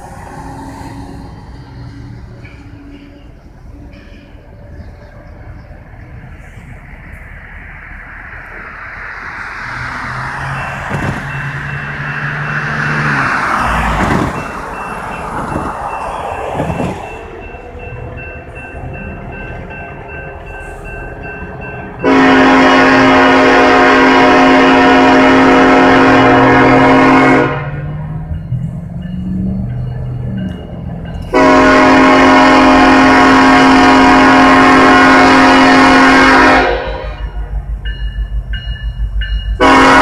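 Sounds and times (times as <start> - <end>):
crossing bell dinging: 9.9 - 40.0
locomotive air horn blast: 22.0 - 28.0, 31.3 - 37.5, 39.6 - 40.0.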